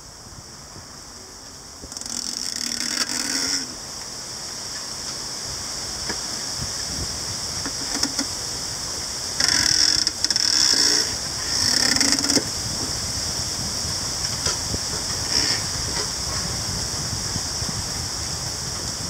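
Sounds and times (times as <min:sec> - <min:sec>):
leaves rustling: 0:00.0 - 0:19.0
bamboo stalks creaking: 0:01.8 - 0:16.8.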